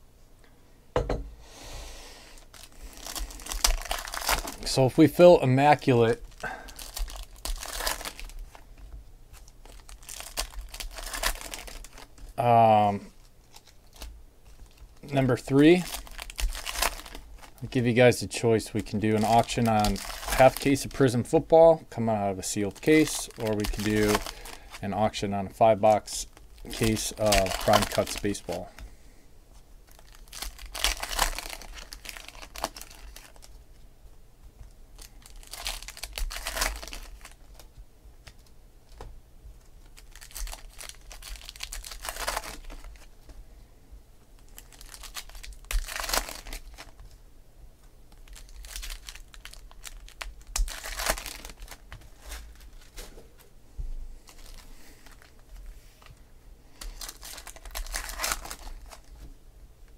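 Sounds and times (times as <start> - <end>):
wrapper tearing and crinkling: 2.4 - 4.9, 5.6 - 8.7, 9.3 - 18.0, 18.7 - 21.2, 22.4 - 28.6, 29.9 - 33.6, 35.0 - 38.4, 39.8 - 43.1, 44.4 - 47.2, 48.1 - 53.1, 54.3 - 55.7, 56.8 - 59.2
cards rustling: 9.3 - 21.4, 22.4 - 28.8, 30.0 - 33.6, 48.2 - 53.5, 54.2 - 59.3.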